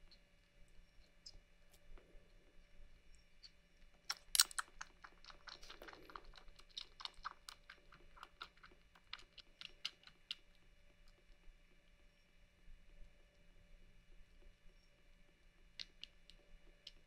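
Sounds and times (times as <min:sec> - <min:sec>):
kitten suckling from bottle: 0:04.1 - 0:10.7.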